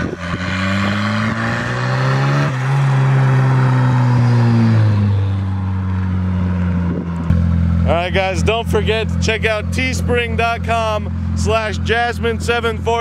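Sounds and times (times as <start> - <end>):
car engine revving hard: 0.0 - 7.9.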